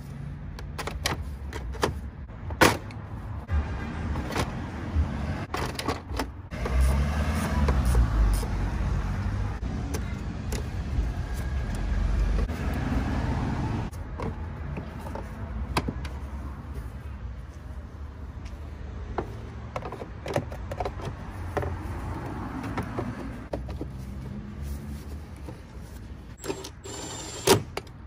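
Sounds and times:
vehicle driving past: 0:06.6 - 0:09.6.

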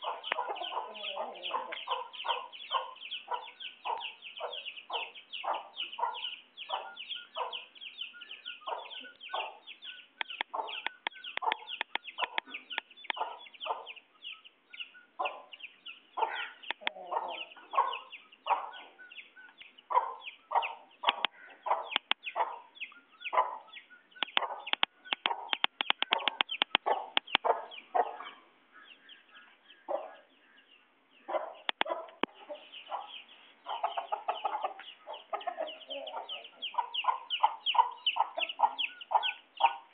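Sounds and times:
chickens clucking: 0:00.0 - 0:39.9
sharp clicks: 0:10.2 - 0:13.2, 0:16.6 - 0:17.0, 0:21.1 - 0:22.3, 0:24.2 - 0:27.5, 0:31.7 - 0:32.3.

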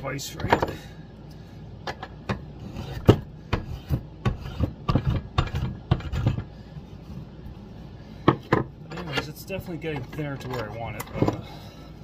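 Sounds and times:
spokeshave scraping wood: 0:02.6 - 0:07.3.

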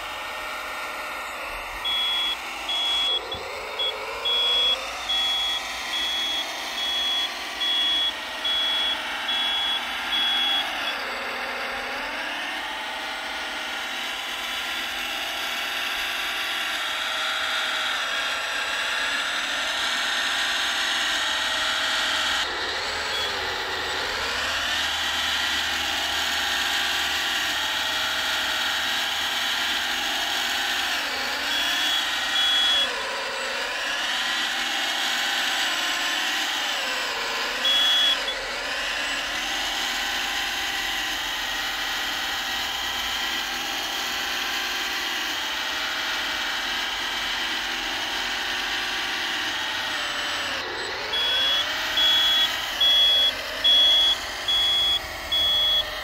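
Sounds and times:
electric motor whine: 0:00.0 - 0:56.0
high reversing beeper: 0:01.1 - 0:11.8, 0:23.1 - 0:23.6, 0:31.5 - 0:33.0, 0:37.6 - 0:38.4, 0:50.9 - 0:56.0.

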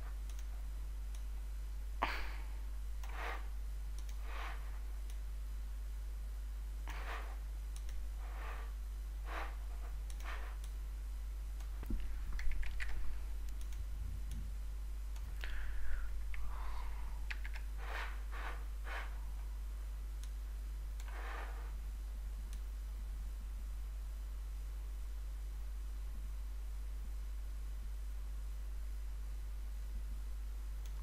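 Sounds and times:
low hum: 0:00.0 - 0:31.0
mouse and keyboard clicks: 0:12.3 - 0:13.8, 0:17.3 - 0:17.7.

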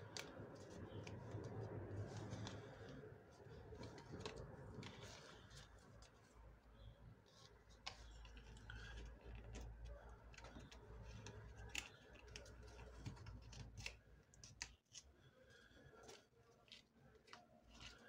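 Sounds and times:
paper being folded: 0:00.0 - 0:06.4.

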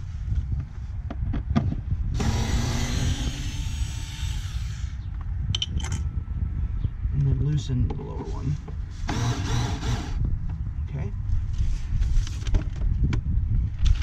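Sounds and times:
steady low rumble: 0:00.0 - 0:14.0
cordless screwdriver whirring: 0:02.2 - 0:04.9, 0:09.1 - 0:10.2.

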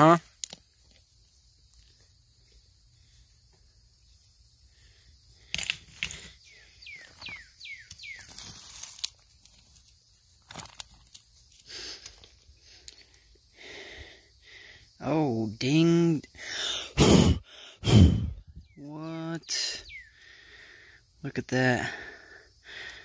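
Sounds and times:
rocks knocking together: 0:10.4 - 0:11.2.

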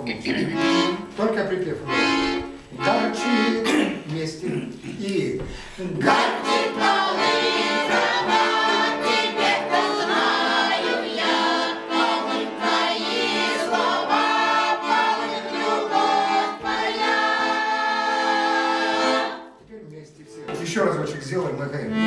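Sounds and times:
accordion: 0:00.0 - 0:04.1, 0:06.0 - 0:22.0
group singing: 0:05.9 - 0:19.6.

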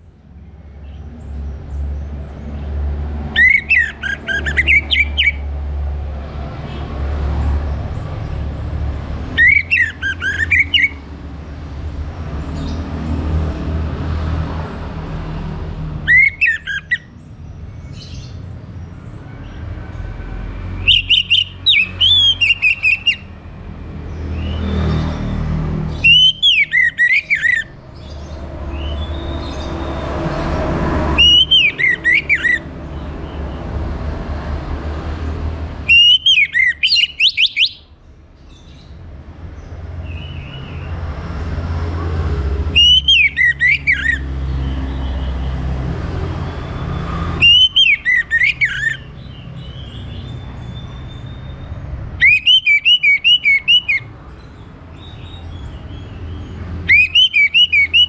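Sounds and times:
bird singing whistled notes: 0:03.4 - 0:05.5, 0:09.4 - 0:11.0, 0:16.1 - 0:17.2, 0:20.8 - 0:23.3, 0:25.9 - 0:29.9, 0:31.2 - 0:32.7, 0:35.8 - 0:37.9, 0:42.7 - 0:45.4, 0:46.5 - 0:58.0.

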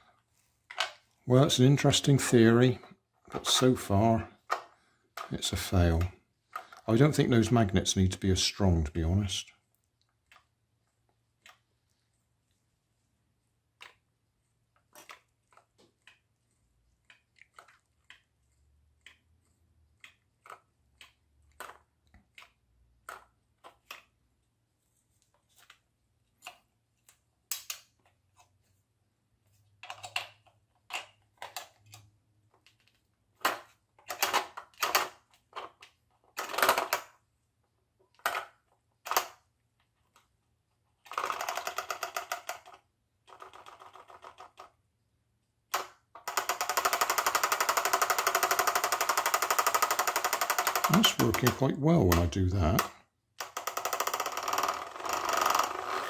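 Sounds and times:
plastic flapper rattling buzz: 0:46.2 - 0:51.1, 0:53.4 - 0:56.0.

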